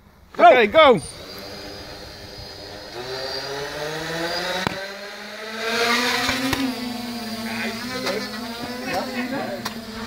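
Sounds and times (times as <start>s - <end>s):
drone propellers whirring: 0.6s - 10.0s.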